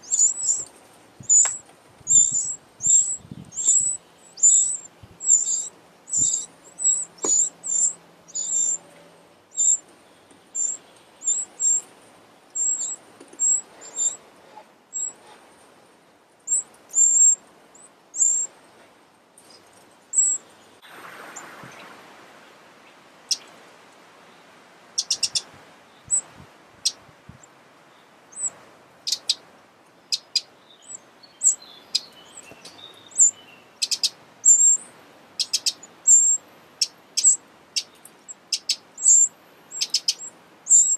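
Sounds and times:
soft rustle: 0.0s - 5.9s, 8.8s - 30.0s
nestlings cheeping: 0.0s - 8.8s, 9.5s - 11.9s, 12.6s - 14.2s, 14.9s - 15.2s, 16.4s - 18.5s, 19.4s - 20.6s, 25.0s - 25.4s, 28.3s - 29.4s, 30.1s - 40.9s.

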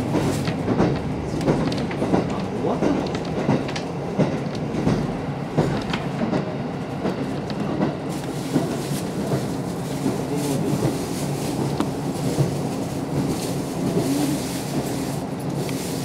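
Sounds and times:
wheels clicking over rails: 0.0s - 11.0s.

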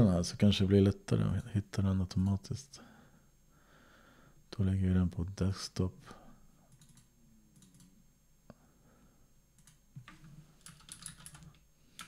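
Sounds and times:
keyboard typing: 6.7s - 7.9s, 9.6s - 12.0s
computer mouse clicks: 9.6s - 12.0s.

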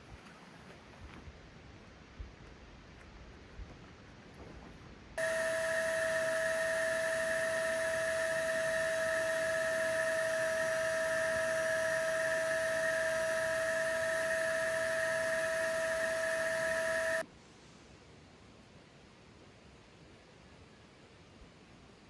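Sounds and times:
electric air pump whining: 5.2s - 17.2s.

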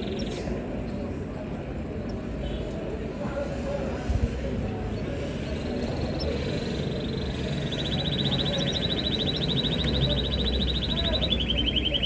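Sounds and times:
nestlings peeping: 4.8s - 12.0s.

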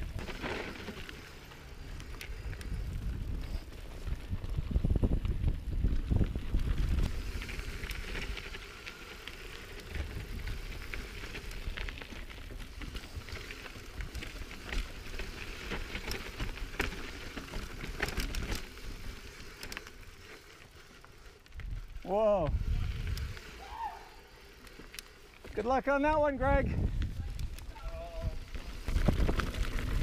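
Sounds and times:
bike tyres crackling over stones: 0.0s - 30.0s
wind rumble on microphone: 2.0s - 8.6s, 21.6s - 23.4s, 26.6s - 30.0s.

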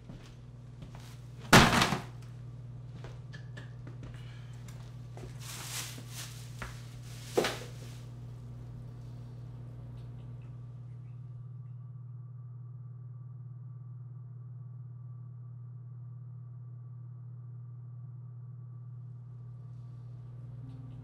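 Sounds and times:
steady low hum: 0.0s - 21.0s
objects thudding on counter: 1.6s - 2.1s
rustling: 5.2s - 8.1s.

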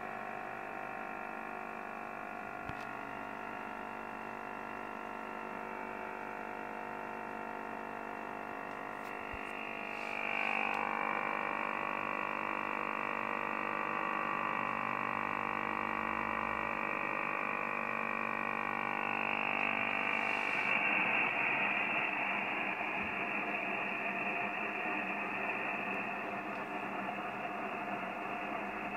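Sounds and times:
radio interference tones and hiss: 8.9s - 28.9s.

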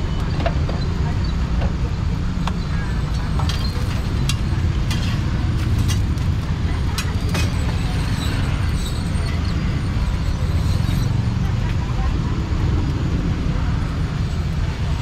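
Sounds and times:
clinks and clatter: 2.9s - 11.9s.

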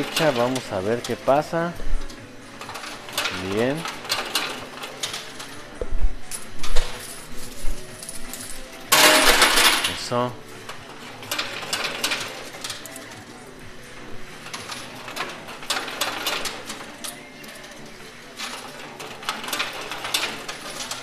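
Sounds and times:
coins clicking and clinking: 0.0s - 13.6s, 14.3s - 21.0s
burst of clattering coins: 7.0s - 10.1s.

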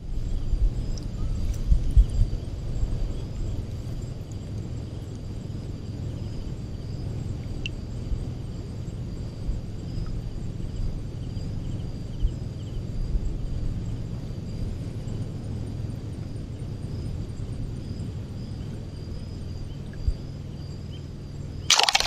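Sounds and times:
low rumble of shallow water: 0.0s - 16.3s.

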